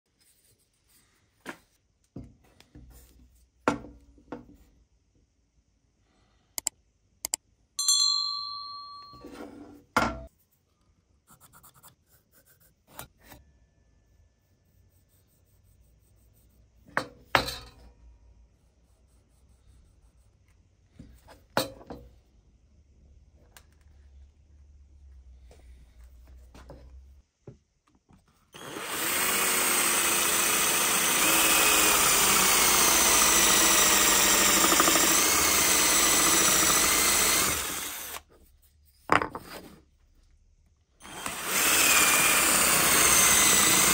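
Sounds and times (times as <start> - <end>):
metal tool ringing: 7.8 - 9.4
tools knocking on metal table: 10.0 - 10.3, 16.9 - 17.8.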